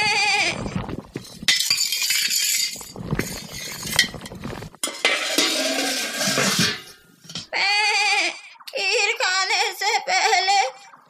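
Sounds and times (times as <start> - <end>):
metal ladle scraping a pot: 1.1 - 7.5.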